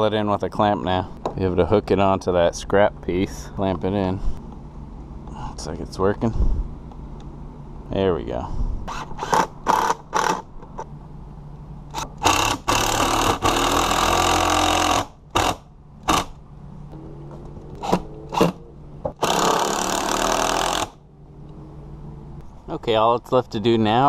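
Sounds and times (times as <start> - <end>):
cordless driver driving screws: 8.9 - 10.5, 11.9 - 16.3, 19.2 - 21.0.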